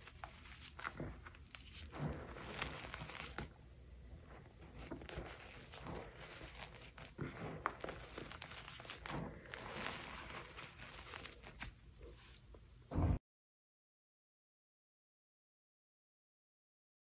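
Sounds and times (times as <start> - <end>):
chalk crunching and crumbling: 0.0 - 3.6, 4.2 - 12.5
low thump: 12.9 - 13.2.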